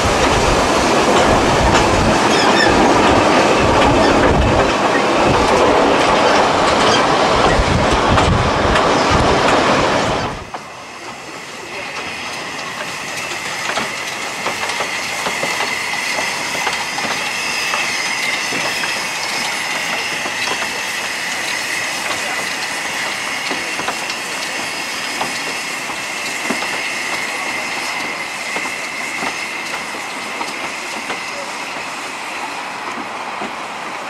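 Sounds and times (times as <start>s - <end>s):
train wheels clicking over rail joints: 0.0s - 34.0s
high-pitched wheel squeal: 2.3s - 2.8s.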